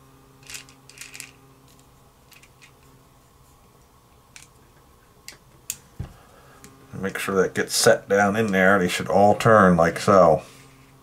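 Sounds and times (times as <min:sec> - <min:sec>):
clicks of small parts handled: 0:00.4 - 0:02.8.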